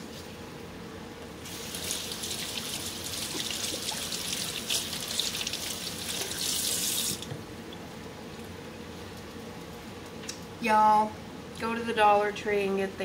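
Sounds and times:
hands washing under water: 1.5s - 7.3s.

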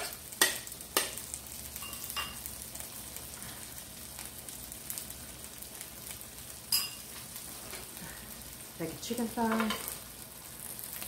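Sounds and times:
chicken sizzling on grill: 0.0s - 11.0s.

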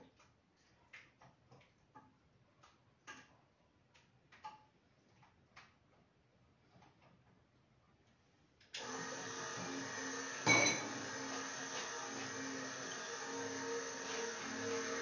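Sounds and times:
cookware clicks and knocks: 10.5s - 10.9s.

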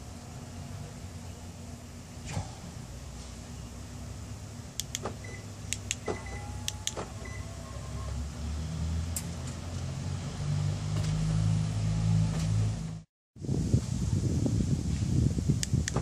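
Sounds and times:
power window motor humming: 4.9s - 8.3s
short beeps: 5.2s - 7.5s.

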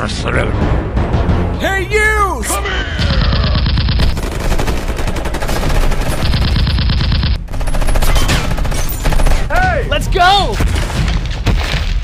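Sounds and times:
rapid machine-gun fire: 3.1s - 9.5s.

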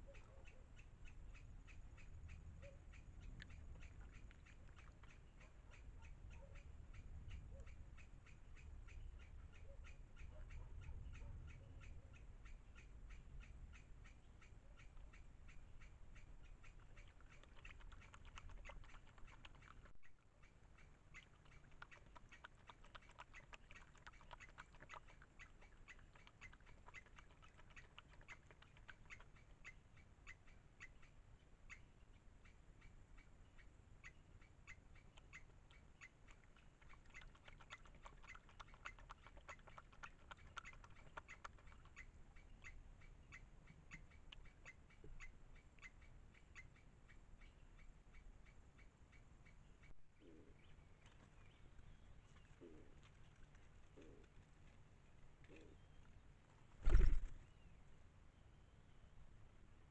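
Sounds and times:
rapid pulsing animal calls: 0.0s - 31.1s, 34.7s - 46.8s, 56.8s - 57.4s.

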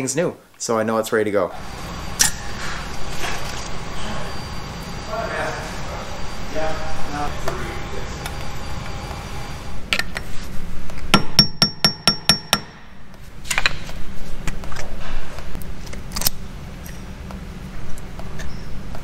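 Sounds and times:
ringing metal taps: 11.2s - 12.8s.

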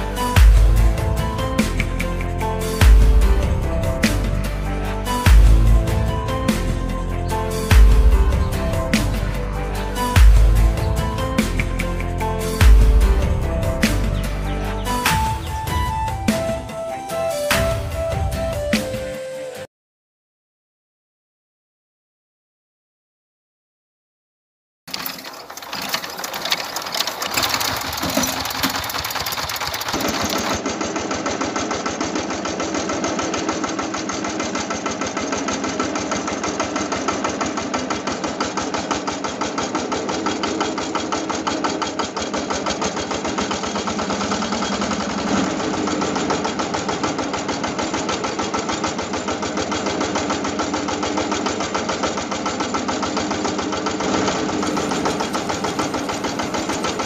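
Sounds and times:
small engine chugging: 24.9s - 57.0s.

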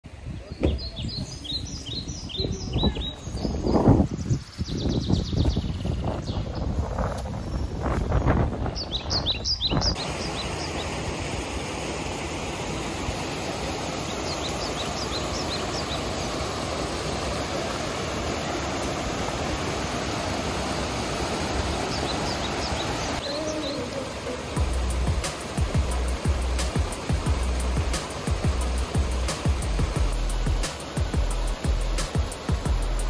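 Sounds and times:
wind buffeting microphone: 0.1s - 10.1s
birds chirping: 0.3s - 11.8s, 12.8s - 33.0s
waterfall pouring over rock: 10.0s - 33.0s.

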